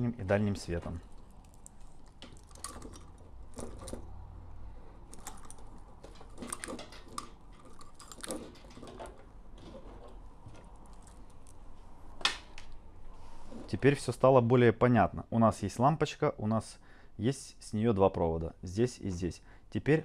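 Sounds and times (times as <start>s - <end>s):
small clicks and rustles: 0.9s - 4.1s, 5.1s - 11.6s.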